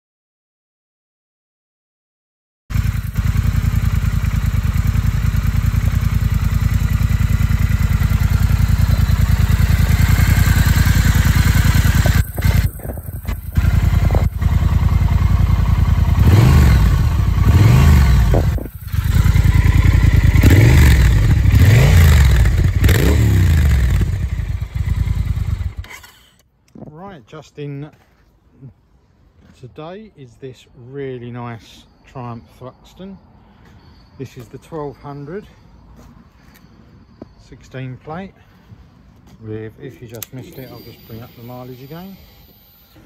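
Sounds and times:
motorcycle engine idling: 2.7 - 25.9
engine revving: 2.7 - 26.2.

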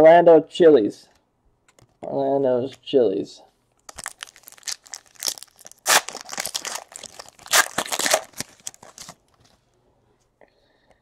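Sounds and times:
foil wrapper tearing and crinkling: 3.9 - 9.3.

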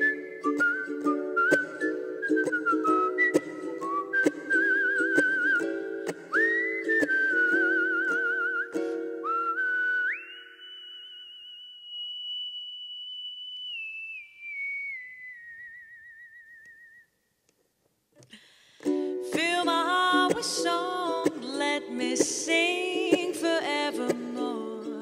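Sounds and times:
wavering whistle-like note: 0.0 - 17.4.

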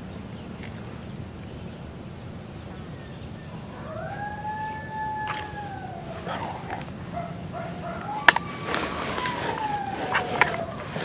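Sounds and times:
coyote howling: 2.6 - 11.0.

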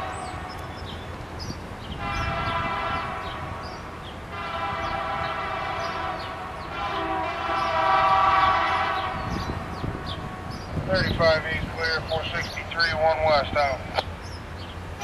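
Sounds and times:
distant locomotive air horn blasts: 0.0 - 0.7, 1.9 - 10.7
steady low rumble: 8.8 - 15.0.

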